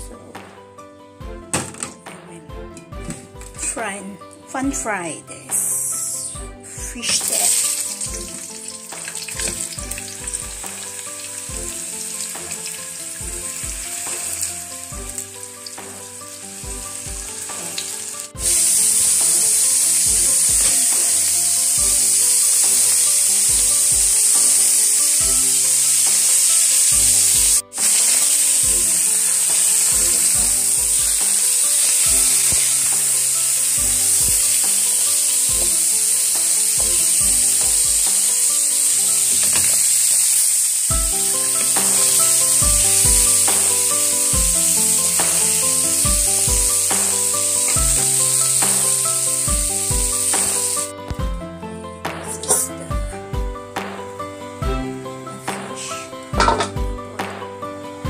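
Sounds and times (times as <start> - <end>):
fish sizzling in a wok: 7.1 - 50.9.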